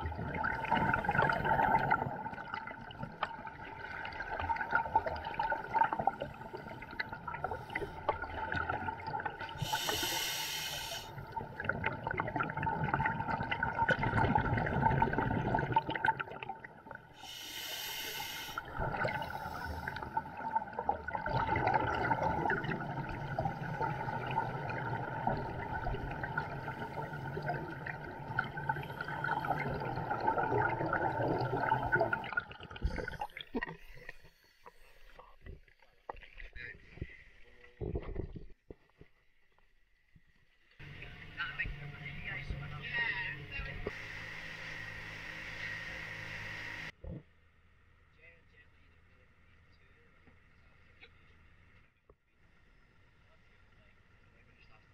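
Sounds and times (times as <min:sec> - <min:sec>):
bubbling exhalations: 0:00.0 - 0:10.2, 0:11.2 - 0:16.7, 0:18.6 - 0:34.1
regulator hissing inhalations: 0:09.6 - 0:11.2, 0:17.2 - 0:20.2.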